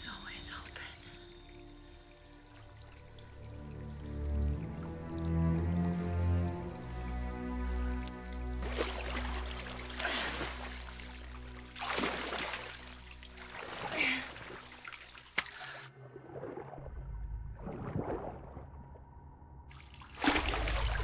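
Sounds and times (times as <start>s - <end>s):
low held film score: 0.0s - 21.0s
water splashing and sloshing: 0.0s - 21.0s.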